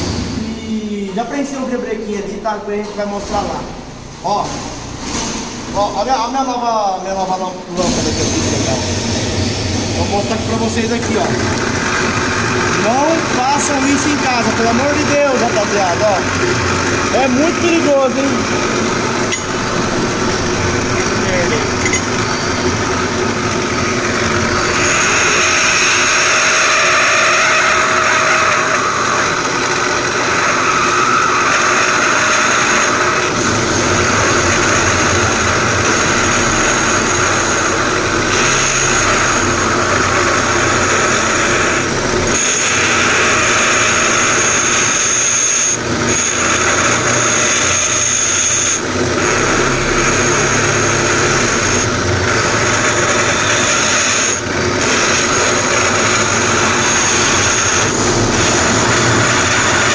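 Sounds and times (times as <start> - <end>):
drill press machining whine: 7.4 - 59.9
high cutter screech: 7.8 - 59.9.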